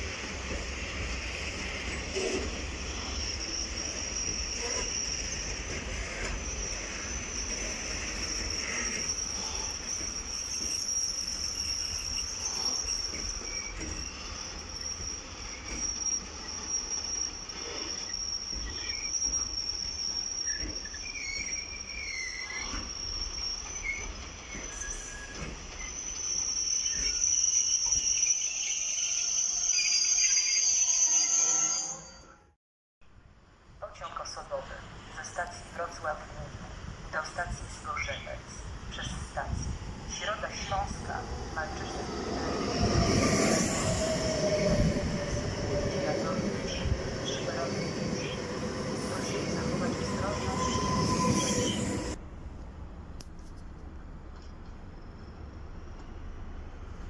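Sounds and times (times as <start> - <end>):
train wheels rumbling on rails: 0.0 - 22.9
high-pitched wheel squeal: 1.5 - 32.4, 41.0 - 52.2.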